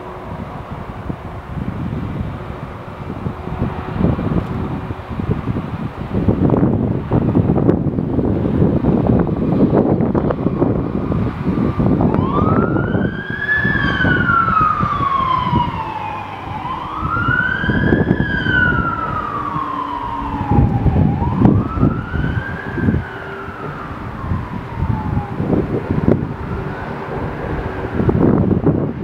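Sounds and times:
fire engine siren wailing: 0:00.0 - 0:29.0.

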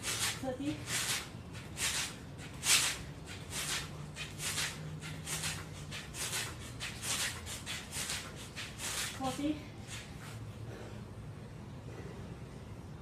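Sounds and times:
steady low hum: 0:00.0 - 0:13.0
woman breathing heavily: 0:10.5 - 0:12.4.

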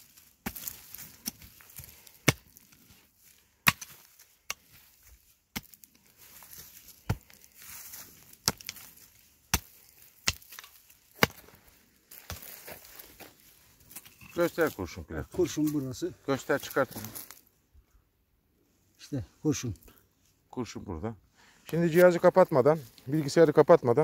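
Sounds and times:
hoe chopping hard soil: 0:00.4 - 0:02.6, 0:03.6 - 0:04.8, 0:05.5 - 0:05.8, 0:09.5 - 0:11.6.

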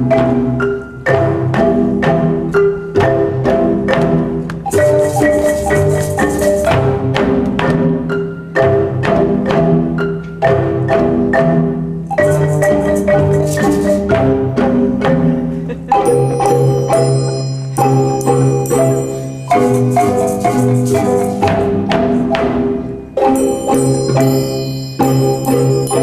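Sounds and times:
marimba ensemble playing: 0:00.0 - 0:26.0
triangle ringing: 0:15.6 - 0:26.0.

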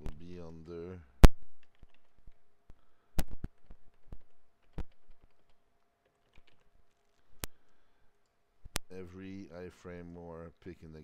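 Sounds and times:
computer keyboard keystrokes: 0:01.6 - 0:02.4, 0:03.2 - 0:06.7.

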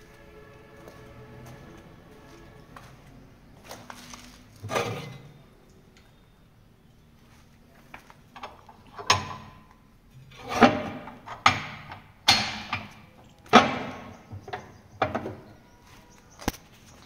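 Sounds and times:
knocks and clanks on sheet steel: 0:10.5 - 0:15.5.

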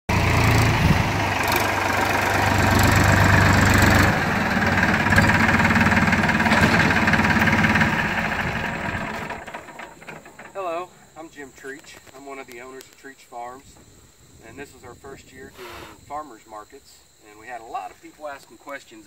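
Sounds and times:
tractor diesel engine passing: 0:00.1 - 0:11.9.

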